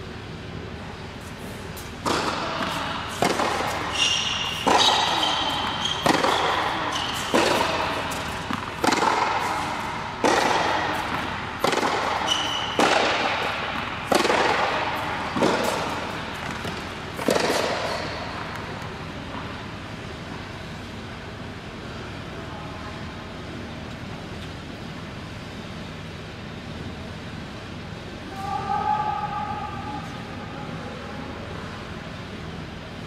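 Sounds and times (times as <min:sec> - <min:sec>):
racket hitting tennis ball: 0:01.4 - 0:19.5.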